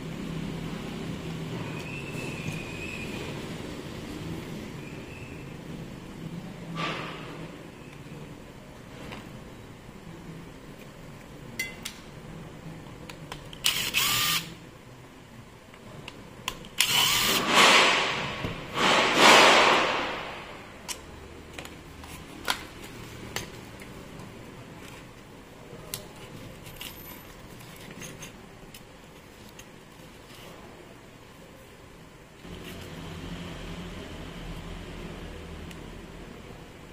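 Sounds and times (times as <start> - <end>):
cordless screwdriver running: 13.6 - 14.5, 16.8 - 17.4.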